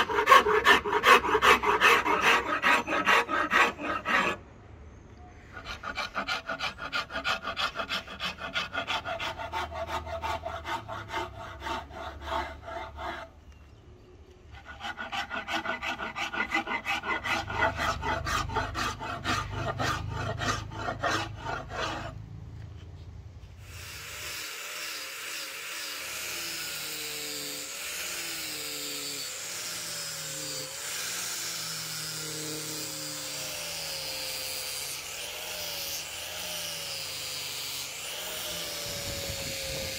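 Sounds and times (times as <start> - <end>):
rasp filing wood: 0.0 - 4.4, 5.5 - 13.4, 14.5 - 22.2.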